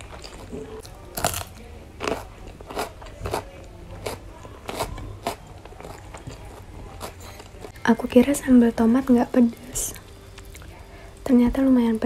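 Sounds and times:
crunching cucumber bites: 0:00.0 - 0:07.2
quiet chewing: 0:00.0 - 0:07.8, 0:09.9 - 0:11.2.

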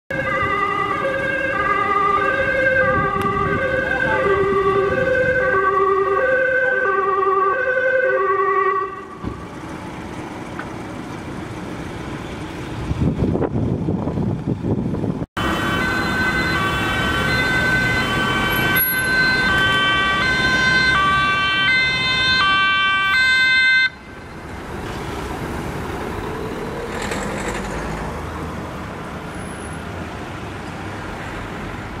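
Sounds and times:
two-tone ambulance siren: 0:00.1 - 0:09.4, 0:15.4 - 0:24.4
van engine and tyre noise: 0:00.1 - 0:32.0.

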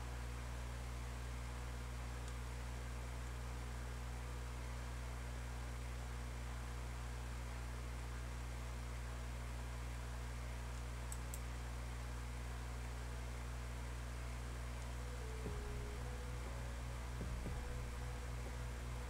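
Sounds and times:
low electrical hum: 0:00.0 - 0:19.0
faint clicks: 0:10.7 - 0:11.5.

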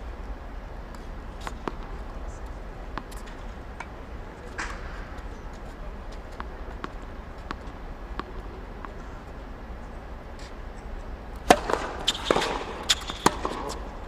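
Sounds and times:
steady low hum: 0:00.0 - 0:14.0
tennis balls struck by rackets: 0:00.8 - 0:14.0
balls bouncing on hard court: 0:01.0 - 0:09.3, 0:11.4 - 0:14.0.

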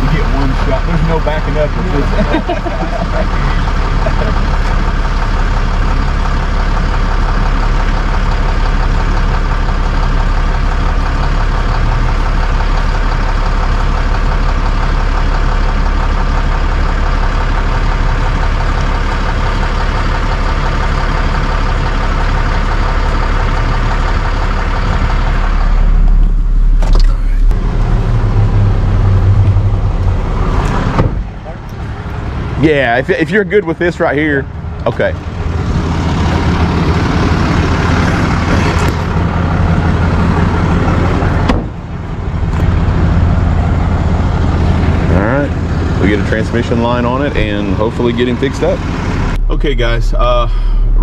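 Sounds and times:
truck engine running: 0:00.0 - 0:51.0
truck door opening: 0:26.8 - 0:27.5, 0:30.5 - 0:31.4, 0:41.3 - 0:41.9.

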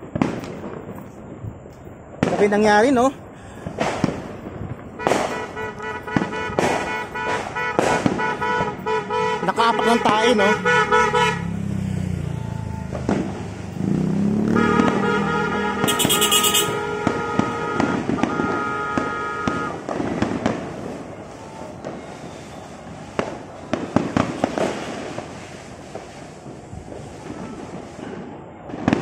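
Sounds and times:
fireworks bursting with bangs: 0:00.0 - 0:29.0
whistling firework tone: 0:11.4 - 0:13.9, 0:14.5 - 0:29.0.

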